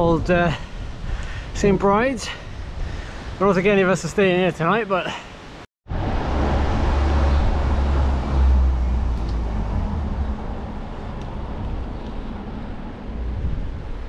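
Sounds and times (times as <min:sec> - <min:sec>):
rushing road noise: 0:05.3 - 0:14.0
wind buffeting microphone: 0:05.9 - 0:14.0.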